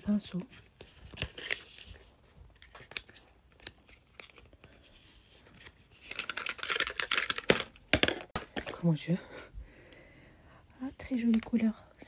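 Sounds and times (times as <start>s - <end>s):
cardboard and plastic crackling: 0.1s - 9.0s
packaging crinkling: 1.1s - 8.4s.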